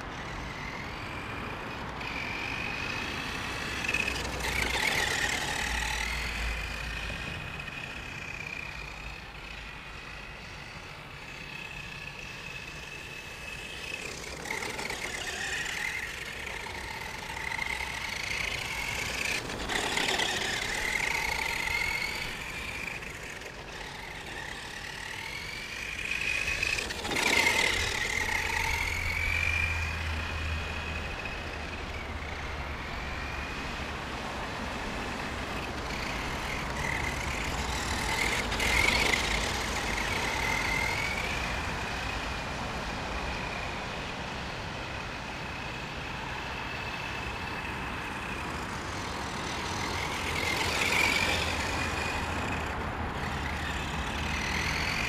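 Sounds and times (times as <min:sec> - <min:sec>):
electric motor whining: 0:00.0 - 0:55.0.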